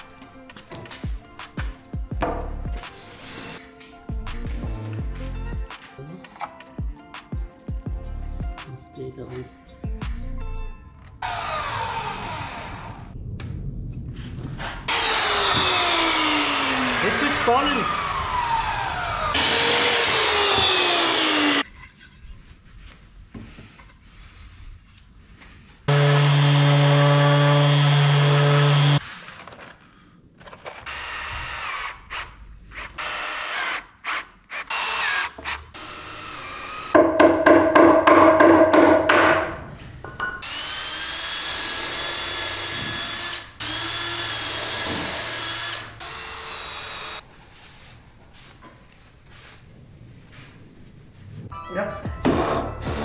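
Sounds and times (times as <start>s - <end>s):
drill driving screws into wood: 14.9s - 21.6s, 30.5s - 37.1s, 40.4s - 47.2s.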